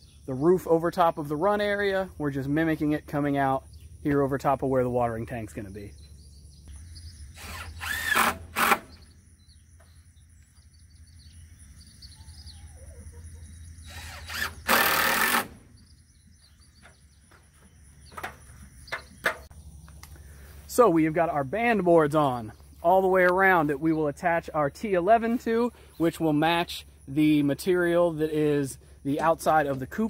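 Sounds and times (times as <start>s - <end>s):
cordless drill driving screws: 7.4s - 9.0s, 13.9s - 15.6s.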